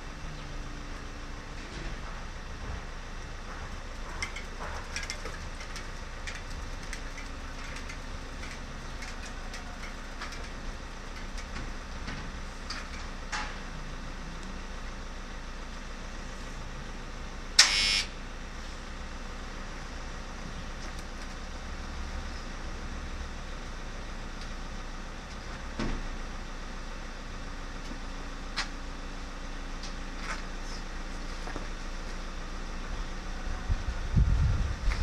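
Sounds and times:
steady low rumble: 32.8 - 35.0.

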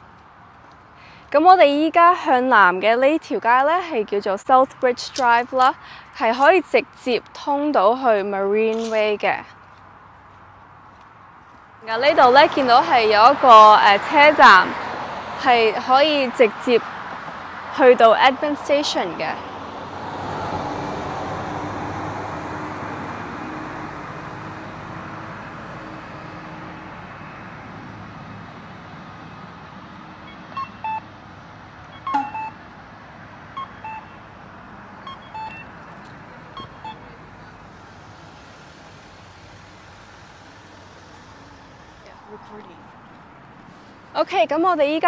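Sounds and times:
road traffic going by: 0.0 - 45.0
crossing signal two-note beeps: 30.3 - 31.1, 31.9 - 32.6, 33.6 - 34.3, 35.0 - 35.8, 36.5 - 37.2.

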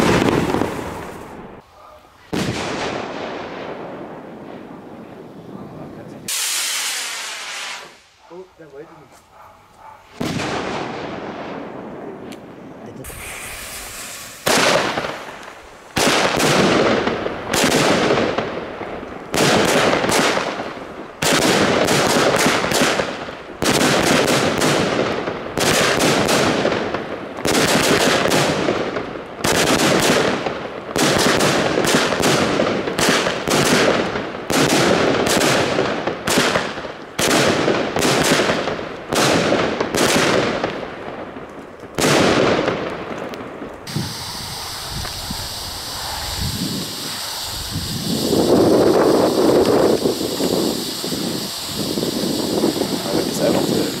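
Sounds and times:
fireworks bangs and crackle: 0.0 - 1.6, 2.2 - 8.9, 10.0 - 54.0
fuse burning: 12.3 - 54.0.

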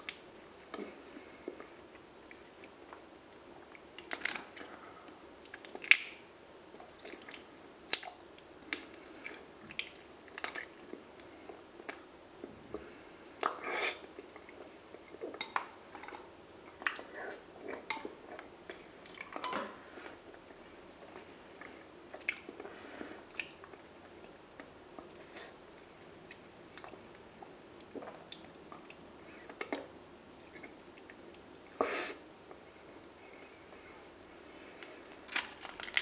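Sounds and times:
lip smacks: 5.4 - 6.2
wet sticky chewing: 35.0 - 36.0.

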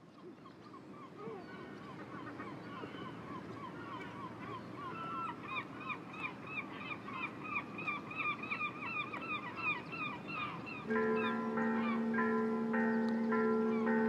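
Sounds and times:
waterbirds calling: 0.0 - 14.0
ringing bell-like music tones: 10.9 - 14.0.

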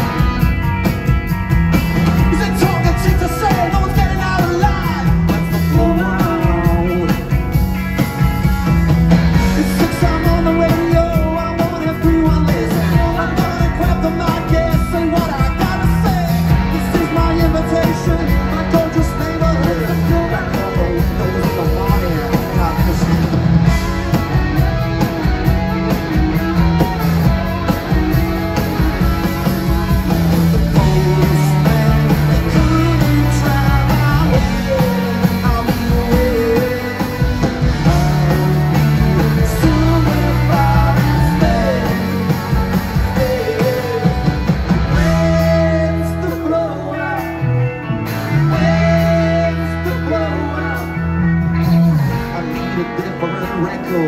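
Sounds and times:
bass guitar: 0.0 - 54.0
drums: 0.0 - 54.0
electric guitars: 0.0 - 54.0
person singing: 2.2 - 7.5, 9.4 - 23.4, 30.5 - 54.0.

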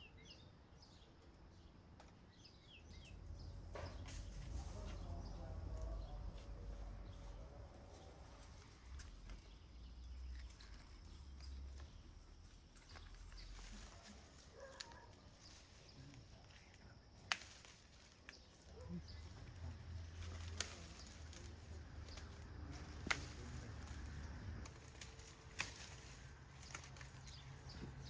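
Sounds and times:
faint outdoor background: 0.0 - 28.0
stems snapping: 7.7 - 28.0.

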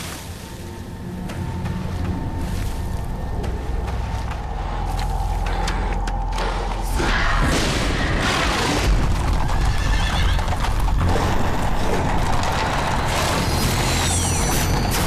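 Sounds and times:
music: 0.0 - 15.0
galloping hoofbeats: 8.9 - 13.3.

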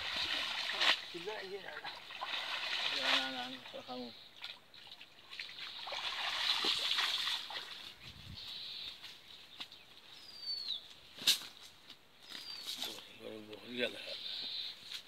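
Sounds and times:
water splashing off net: 0.0 - 1.2, 1.8 - 3.6, 5.3 - 7.8.

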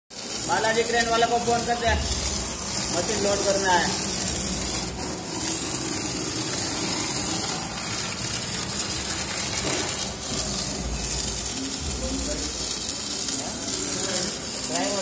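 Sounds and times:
router spindle milling foam: 0.6 - 15.0.

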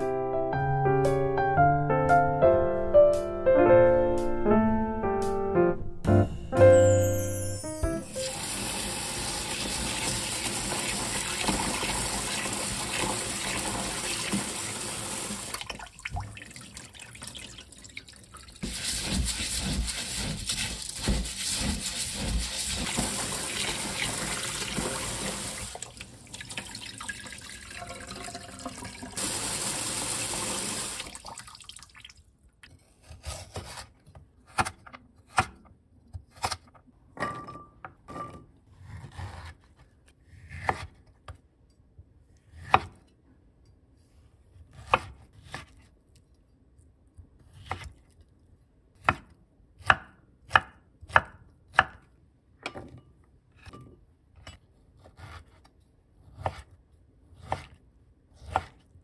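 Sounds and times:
tap water running into colander: 8.2 - 32.2
knife chopping on wooden board: 18.6 - 23.2, 38.8 - 39.8, 40.4 - 41.0, 42.6 - 43.0, 44.7 - 45.7, 49.0 - 52.1, 58.4 - 58.8.

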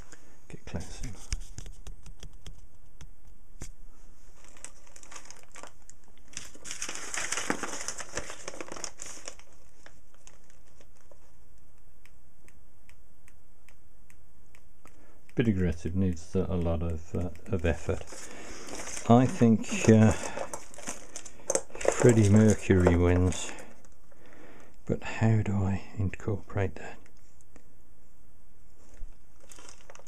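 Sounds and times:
plastic bags crinkling: 4.4 - 11.2, 17.6 - 23.9, 29.4 - 30.0.

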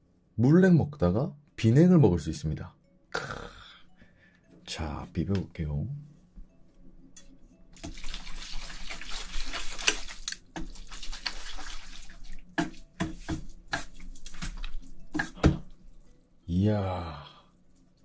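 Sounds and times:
chopsticks stirring noodles: 7.9 - 16.7, 17.4 - 18.0.

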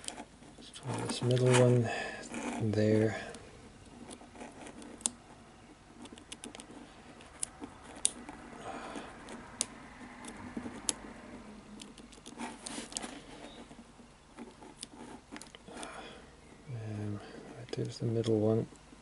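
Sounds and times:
fingers rustling on lock: 0.0 - 8.6, 11.8 - 15.9.

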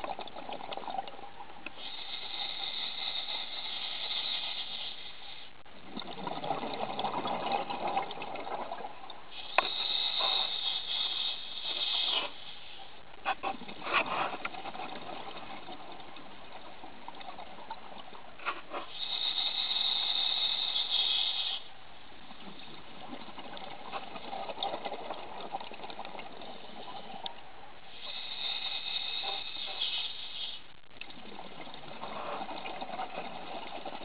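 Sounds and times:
regulator hissing inhalation: 1.8 - 5.5, 9.4 - 12.8, 18.8 - 21.7, 27.9 - 30.7.

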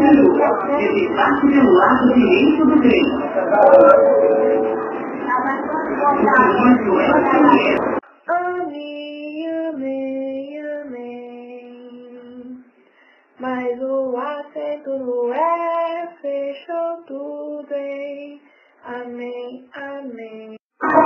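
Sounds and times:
woman singing slow melody: 8.3 - 12.6, 13.4 - 20.6.

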